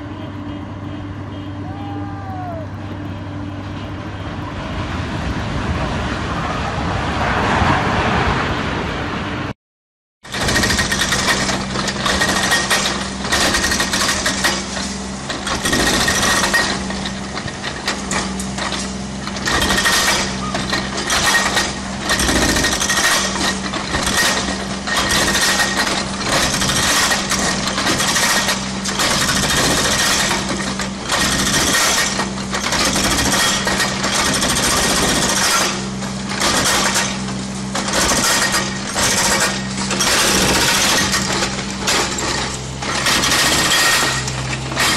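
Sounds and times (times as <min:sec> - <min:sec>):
excavator engine humming: 0:00.0 - 0:07.8, 0:10.3 - 0:44.9
hydraulic breaker hammering concrete: 0:10.2 - 0:44.9.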